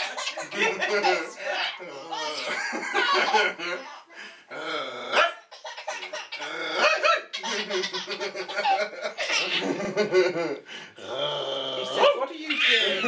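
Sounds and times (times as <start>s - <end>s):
baby giggling: 0.0s - 4.0s, 5.5s - 10.1s.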